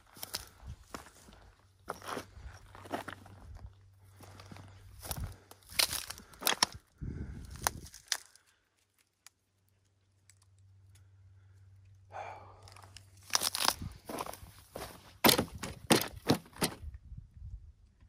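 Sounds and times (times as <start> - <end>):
footsteps crunching on stony ground: 0.0 - 6.8, 12.7 - 16.8.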